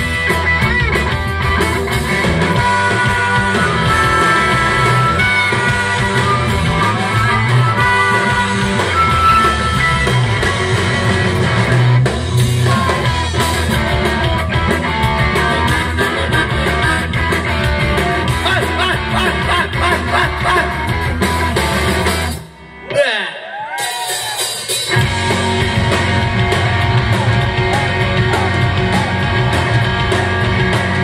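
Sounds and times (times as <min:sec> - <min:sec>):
rock band playing: 0:00.0 - 0:31.0
man singing: 0:18.4 - 0:20.8.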